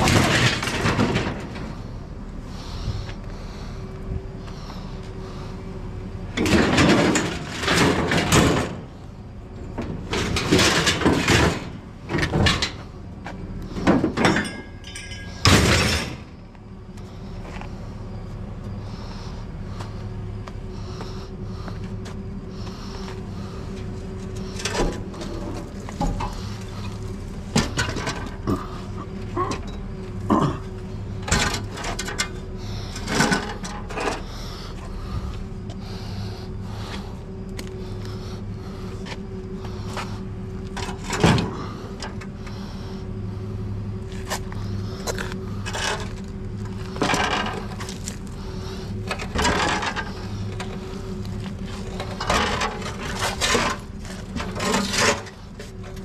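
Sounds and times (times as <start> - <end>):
scrap metal scraping and clattering: 0.0 - 1.8, 6.4 - 8.9, 9.8 - 13.0, 13.7 - 16.4, 31.1 - 34.6, 44.1 - 56.0
truck engine idling hum: 0.0 - 56.0.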